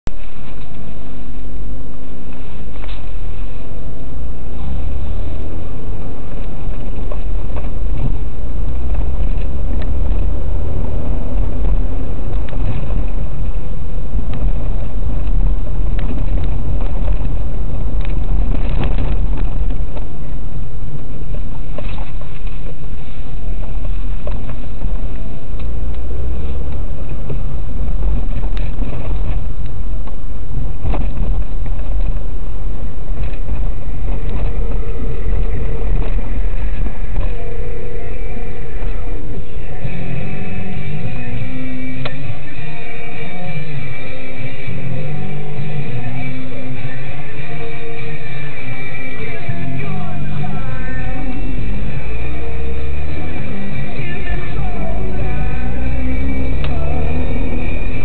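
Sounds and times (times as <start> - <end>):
car engine rumble: 0.0 - 58.0
road rumble: 0.0 - 58.0
knocks and rattles from road: 6.4 - 20.3.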